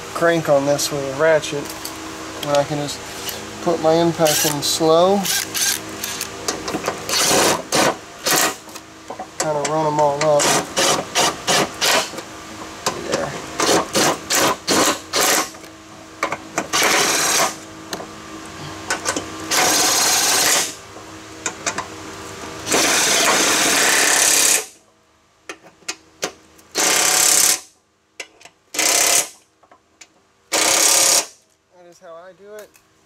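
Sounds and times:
impact driver hammering: 0:30.5 - 0:31.4.

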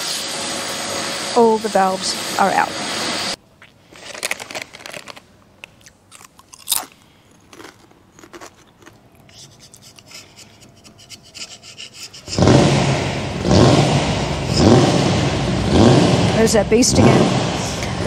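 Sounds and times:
scraper clicking and rustling: 0:04.0 - 0:05.8
loud car engine running: 0:12.3 - 0:18.0.

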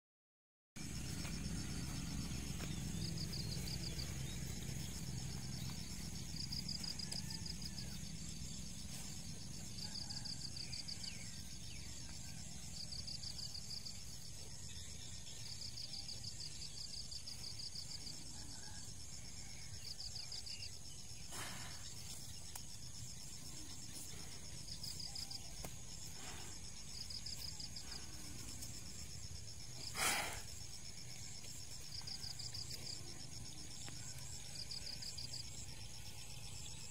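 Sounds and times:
low outdoor rumble: 0:00.8 - 0:19.5
insects chirping in trills: 0:00.8 - 0:36.9.

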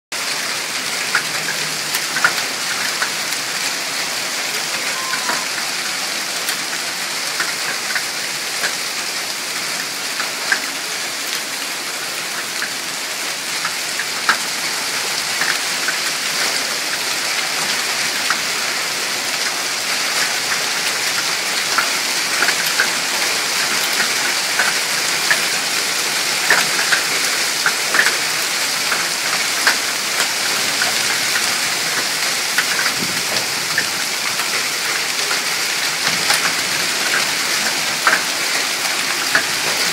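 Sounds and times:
hail and rain on pavement: 0:00.1 - 0:39.9
hailstones clicking on hard surfaces: 0:01.0 - 0:03.3, 0:13.5 - 0:18.5, 0:20.2 - 0:39.9.

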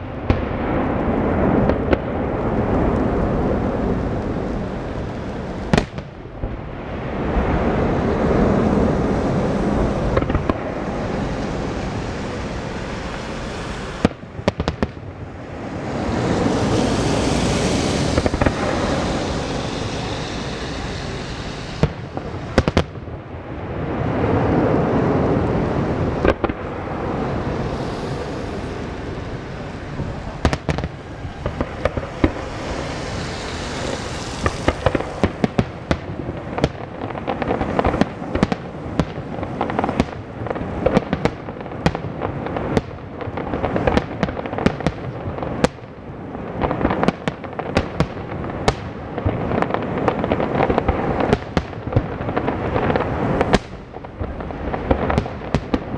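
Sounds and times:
rolling rumble: 0:00.0 - 0:45.7
sharp firework bangs and cracks: 0:00.0 - 0:55.9
firework shells bursting: 0:15.6 - 0:23.1, 0:30.0 - 0:45.7.

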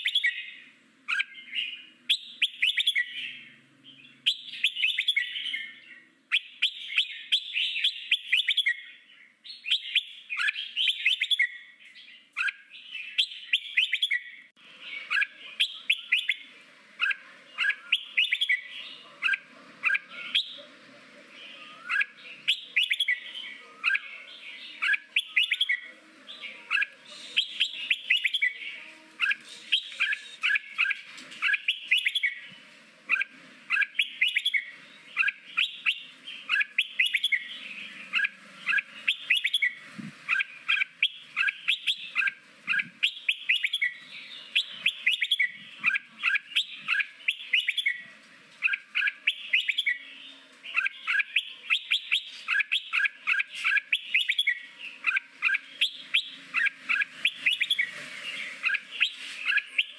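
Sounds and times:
bulbul singing chirping phrases: 0:00.0 - 0:59.9.

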